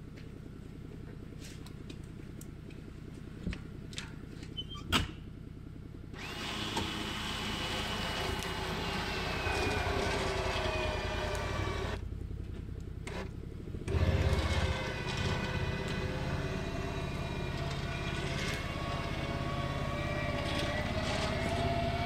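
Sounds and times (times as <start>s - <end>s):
engine idling and revving: 5.2s - 22.0s
electric winch motor whining: 6.2s - 12.0s, 13.0s - 22.0s.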